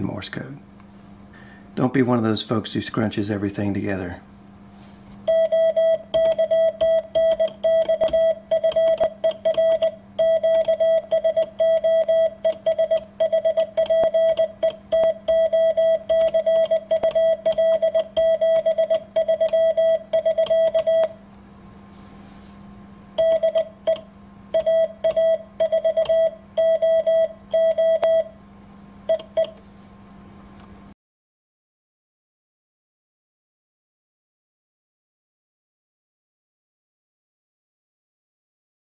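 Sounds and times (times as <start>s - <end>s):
faint low hum: 0.0s - 31.0s
morse code beeping: 5.3s - 21.2s, 23.2s - 28.4s.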